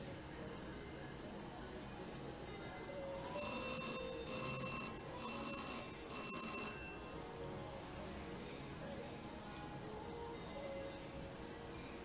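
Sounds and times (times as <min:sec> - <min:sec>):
slot machine win bell ringing: 0:03.3 - 0:07.2.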